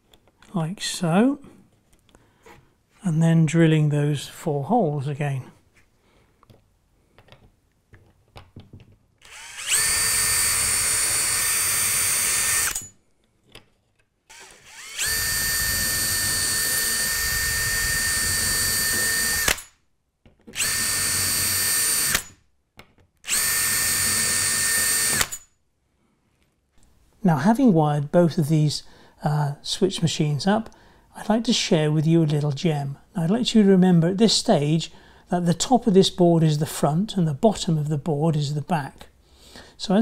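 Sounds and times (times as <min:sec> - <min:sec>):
cordless drill whining: 0:09.2 - 0:13.0, 0:14.3 - 0:19.7, 0:20.5 - 0:22.4, 0:23.2 - 0:25.4.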